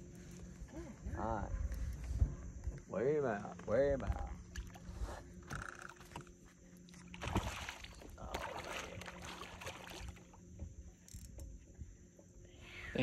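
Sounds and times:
low steady hum: 0:00.0 - 0:13.0
water sounds: 0:03.7 - 0:10.5.

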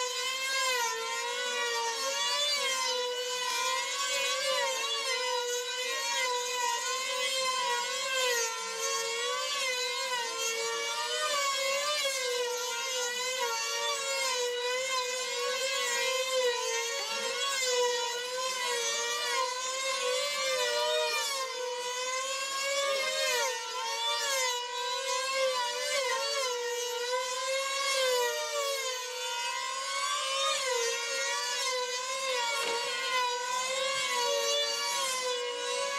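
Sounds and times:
model plane engines buzzing: 0:00.0 - 0:35.9.

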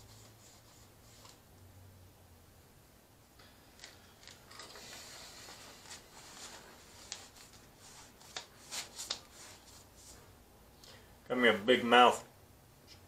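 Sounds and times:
cloth rubbing and rustling: 0:00.0 - 0:01.5, 0:04.2 - 0:10.4.

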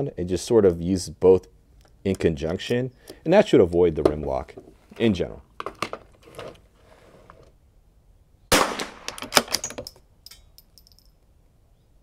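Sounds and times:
rifle shot: 0:08.5 - 0:09.6.

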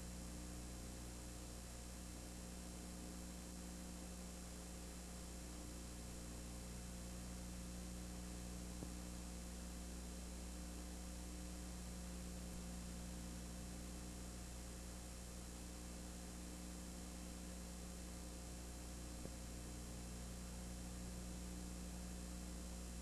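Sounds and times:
electrical hum: 0:00.0 - 0:23.0.

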